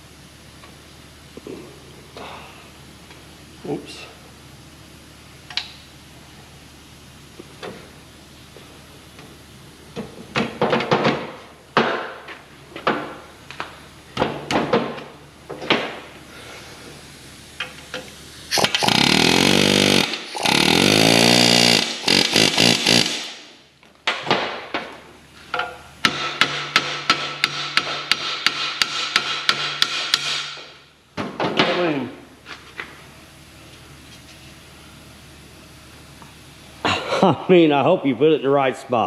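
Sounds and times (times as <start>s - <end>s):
pneumatic air hammer bursts: 18.5s - 23.6s, 26.0s - 30.7s.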